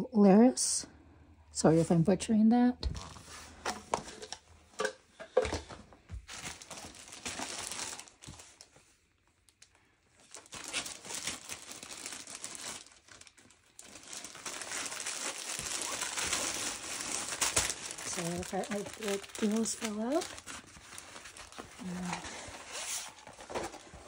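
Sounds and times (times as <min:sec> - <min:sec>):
plastic sleeve crinkling: 0:06.2 - 0:24.0.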